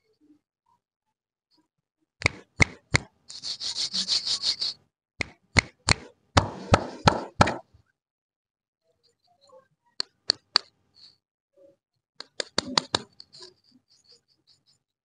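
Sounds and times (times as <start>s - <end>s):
hands snapping clicks: 12.2s - 13.1s.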